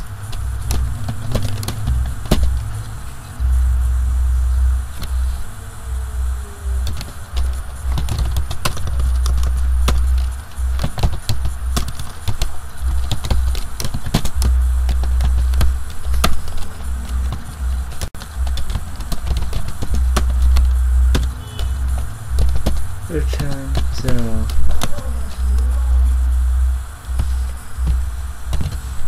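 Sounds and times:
computer keyboard typing: 0:00.0 - 0:03.4, 0:06.6 - 0:26.1
loud low hum: 0:00.0 - 0:29.0.

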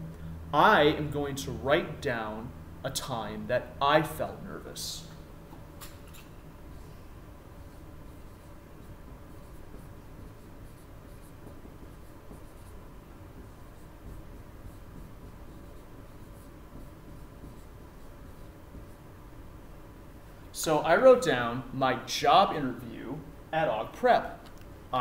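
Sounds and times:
marker writing on whiteboard: 0:07.6 - 0:19.1.

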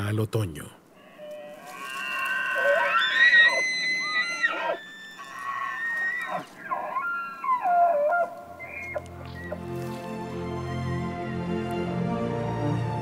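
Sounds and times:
elk bugling: 0:00.9 - 0:10.0.

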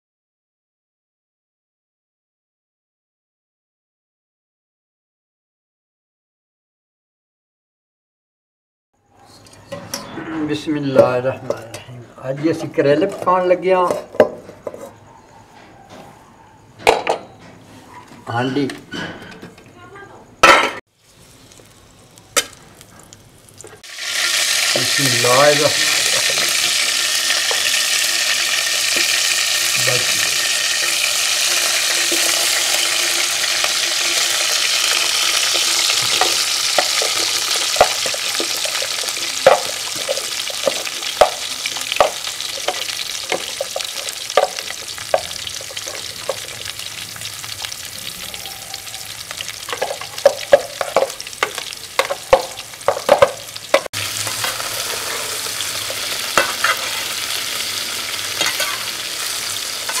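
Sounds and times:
spoon scraping and clinking pot: 0:12.5 - 0:15.0, 0:24.2 - 0:46.6, 0:49.7 - 0:57.4, 0:58.4 - 1:00.0
vegetables sizzling in a pot: 0:20.8 - 1:00.0.

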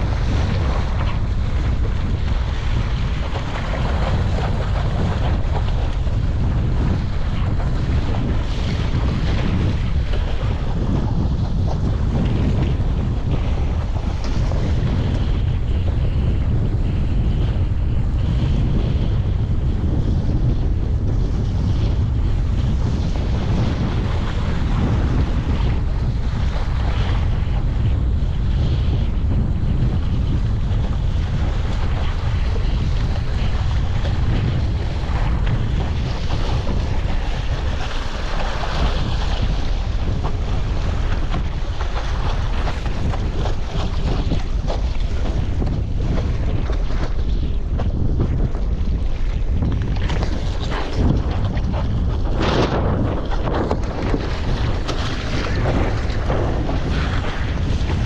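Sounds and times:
water lapping against board: 0:00.0 - 0:58.0
wind buffeting microphone: 0:00.0 - 0:58.0
water splashing against board: 0:30.1 - 0:58.0.

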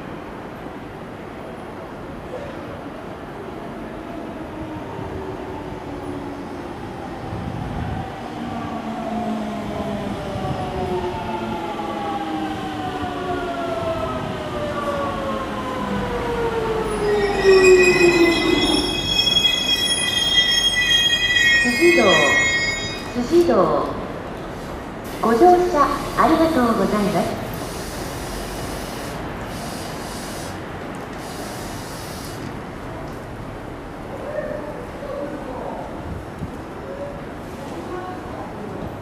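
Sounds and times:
high brake squeal: 0:16.9 - 0:23.4.

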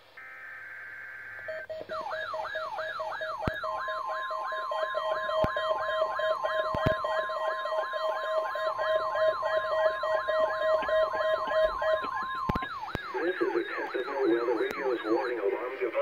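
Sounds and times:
rapidly pulsing beep: 0:01.4 - 0:16.0
steady high tone: 0:01.4 - 0:16.0.

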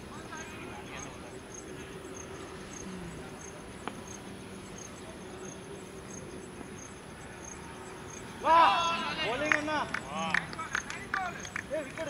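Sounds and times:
insect chirping: 0:00.0 - 0:12.0
outdoor hum: 0:00.0 - 0:12.0.

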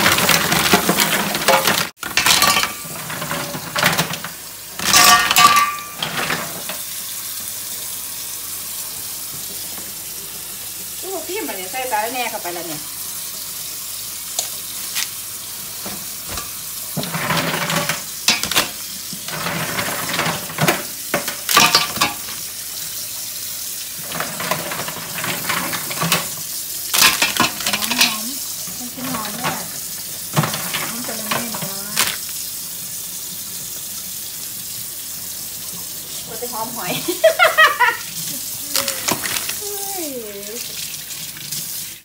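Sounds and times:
running tap water: 0:00.0 - 0:42.0
mussel shells clicking and scraping: 0:38.7 - 0:39.8.

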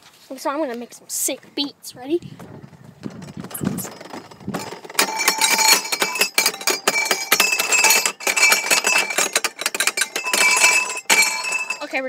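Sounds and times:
hands banging metal equipment: 0:03.0 - 0:12.0.

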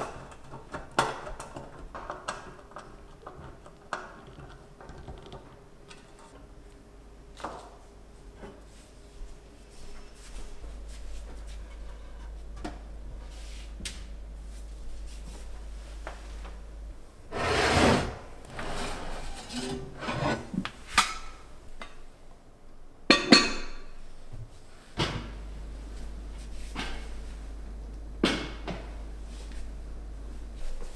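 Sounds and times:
cookware scraping: 0:17.3 - 0:20.6.

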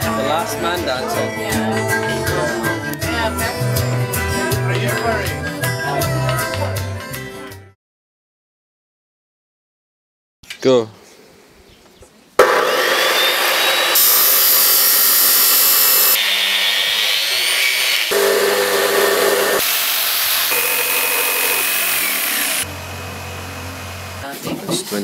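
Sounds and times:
cut-off saw grinding steel pipe: 0:12.4 - 0:24.2.

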